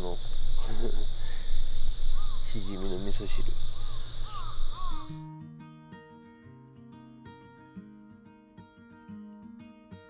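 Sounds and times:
plucked acoustic guitar: 5.1 - 10.0.

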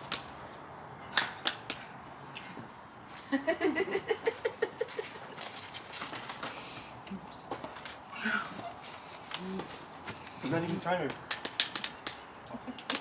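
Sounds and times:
hand slaps: 1.1 - 2.5, 11.0 - 12.2, 12.8 - 13.0.

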